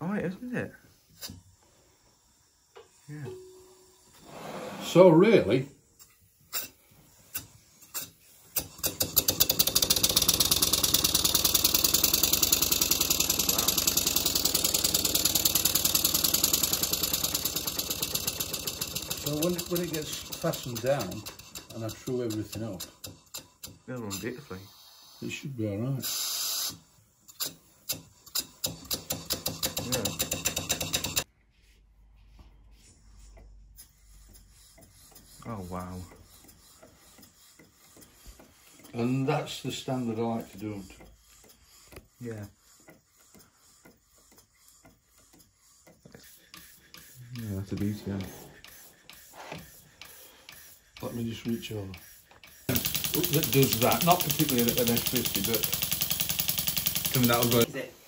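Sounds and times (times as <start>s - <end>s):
model steam engine chuffing: 8.2s - 25.4s, 28.6s - 31.3s, 34.0s - 57.7s
flywheel clicks: 8.5s - 24.3s, 27.4s - 31.3s, 50.0s - 57.7s.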